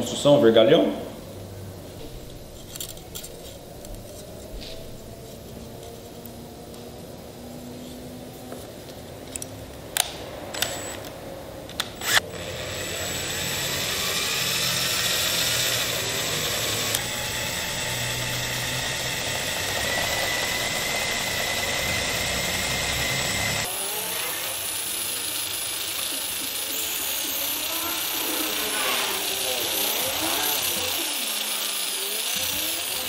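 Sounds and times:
cordless drill running: 10.6s - 11.0s, 11.9s - 33.0s.

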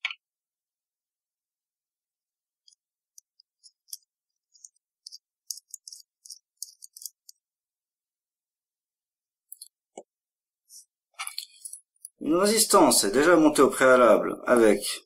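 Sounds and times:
small metal clicks and scrapes: 2.6s - 7.4s.

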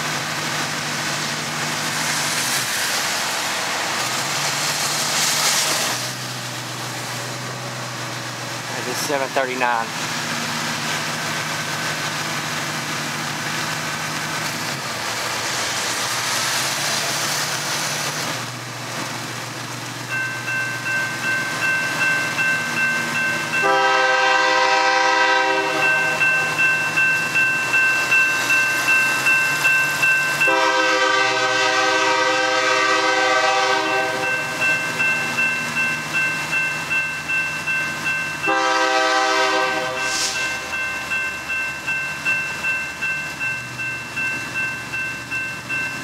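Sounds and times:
bell ringing: 20.1s - 23.8s, 25.8s - 30.6s, 34.2s - 38.7s, 40.0s - 46.0s
locomotive air horn blasts: 23.6s - 26.3s, 30.4s - 34.5s, 38.5s - 40.6s.

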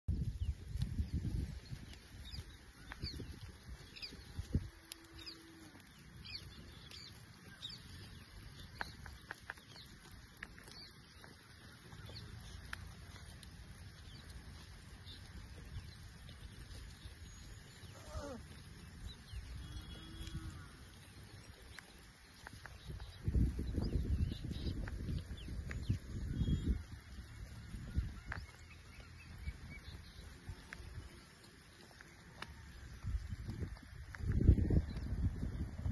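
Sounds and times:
faint animal calls: 17.6s - 18.9s.

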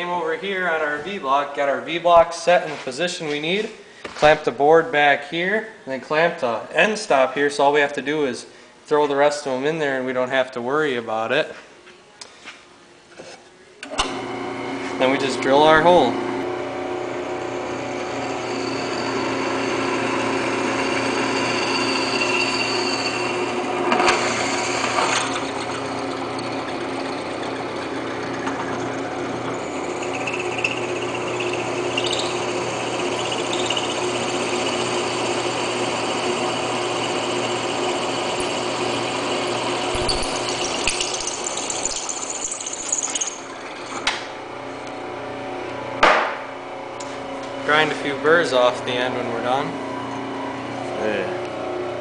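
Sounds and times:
drill press motor hum: 13.9s - 45.1s
drill bit whining in metal: 15.4s - 43.6s
drill bit scraping metal: 17.4s - 44.0s.

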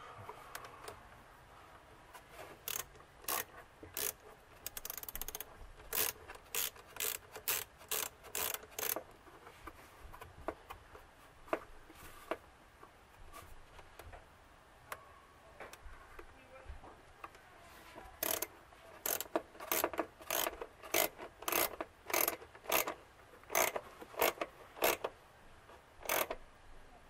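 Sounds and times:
hand ratchet clicking: 2.6s - 9.1s, 18.2s - 25.1s, 26.0s - 26.4s.

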